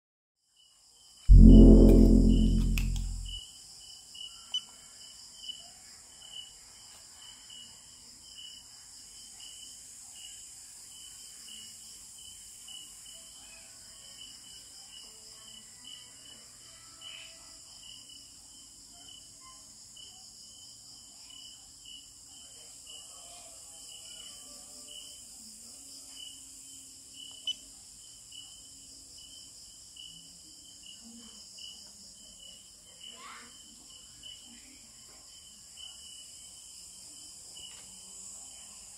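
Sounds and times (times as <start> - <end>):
sharp click: 1.3 - 3.3.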